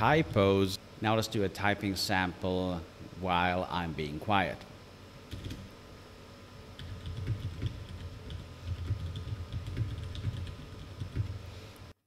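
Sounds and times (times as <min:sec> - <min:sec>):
dehumidifier hum: 0:00.0 - 0:12.0
mechanical keyboard typing: 0:05.3 - 0:05.6, 0:06.8 - 0:11.4.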